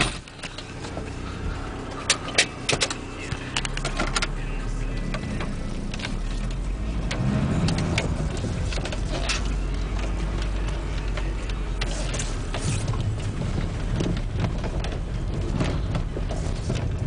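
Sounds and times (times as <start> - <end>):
diesel engine drone: 0.0 - 17.0.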